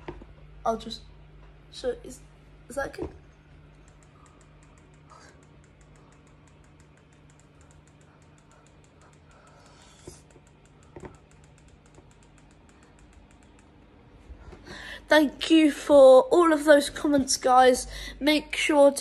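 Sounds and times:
faint steady hum: 0.0s - 19.0s
faint even ticking: 3.4s - 14.0s.

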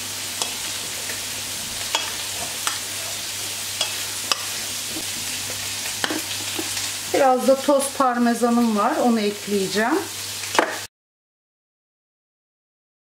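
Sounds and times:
vegetables sizzling in a pan: 0.0s - 10.9s.

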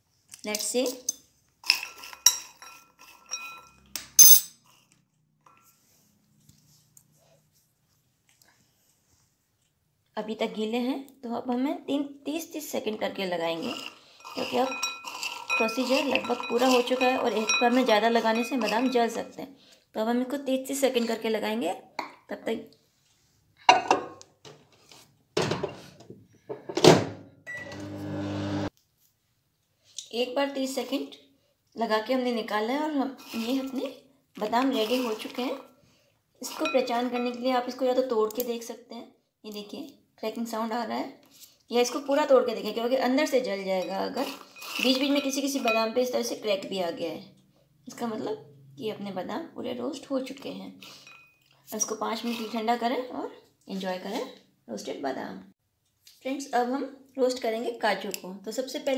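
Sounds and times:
spoon clinking on bowl: 1.8s - 4.6s, 14.2s - 19.3s, 36.5s - 37.7s, 43.8s - 46.1s, 51.0s - 51.5s
bowl knocking and clattering: 14.6s - 19.2s, 23.7s - 24.2s, 44.6s - 46.0s
short beep: 27.5s - 27.9s
microwave oven humming: 27.5s - 28.7s.

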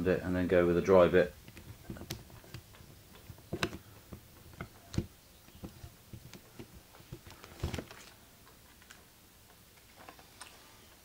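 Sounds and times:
camera body clicks and taps: 1.5s - 3.8s.

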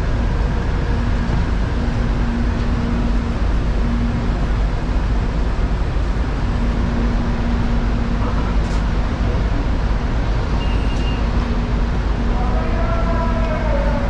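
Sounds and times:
train rumble and hum: 0.0s - 14.0s
brief high beep: 10.6s - 11.2s.

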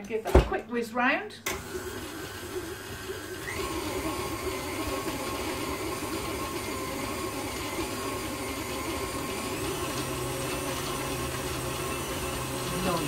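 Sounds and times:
electric stand mixer running: 1.5s - 13.0s.

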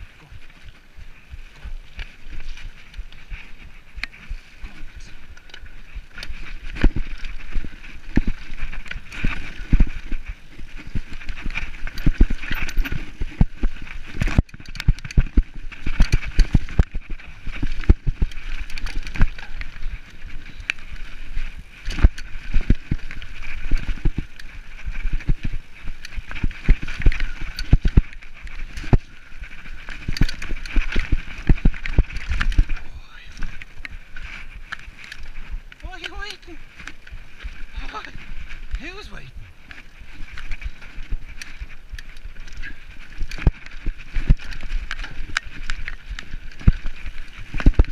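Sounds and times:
bike clattering over bumps: 5.4s - 29.0s.

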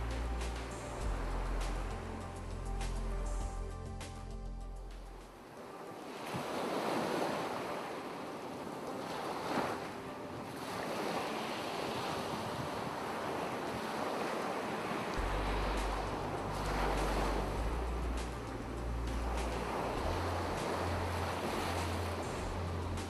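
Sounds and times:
ocean waves breaking on shore: 0.0s - 3.5s, 5.0s - 23.0s
low steady hum: 0.0s - 5.2s, 15.2s - 23.0s.

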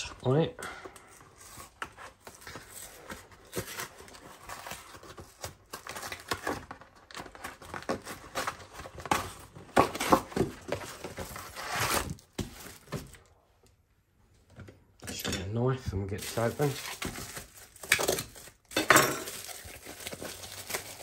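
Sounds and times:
cardboard box tearing: 2.1s - 13.1s
plastic film crinkling: 16.2s - 21.0s.

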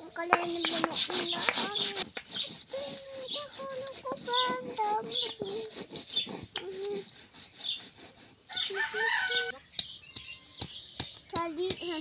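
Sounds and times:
rooster crowing: 8.5s - 9.6s.

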